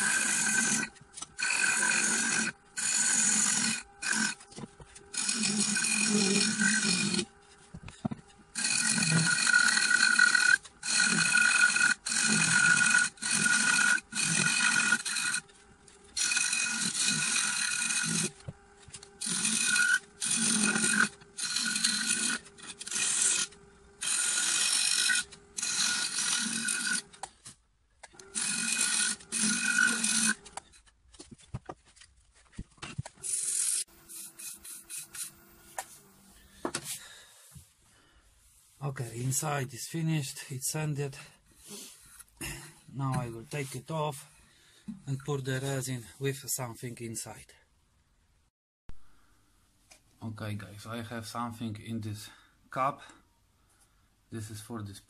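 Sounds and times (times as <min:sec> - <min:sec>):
lathe tool scraping cuts: 0:00.0 - 0:27.3, 0:28.1 - 0:30.7, 0:33.2 - 0:36.7
wood lathe humming: 0:00.0 - 0:27.3, 0:28.1 - 0:30.6, 0:33.2 - 0:37.3.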